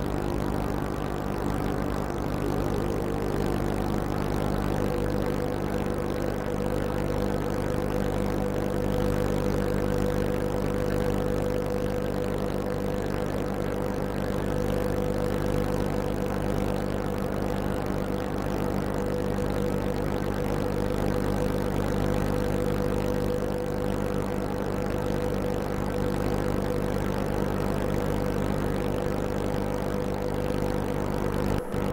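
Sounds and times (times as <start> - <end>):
boat engine droning: 0.0 - 17.6.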